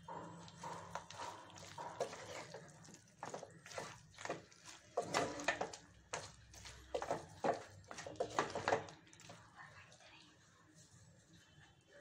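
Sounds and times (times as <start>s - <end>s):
spatula scraping a pan: 0.5s - 8.9s.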